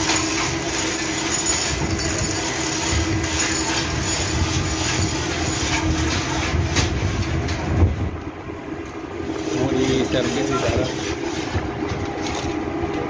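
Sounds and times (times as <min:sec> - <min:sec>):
engine room machinery rumble: 0:00.0 - 0:13.0.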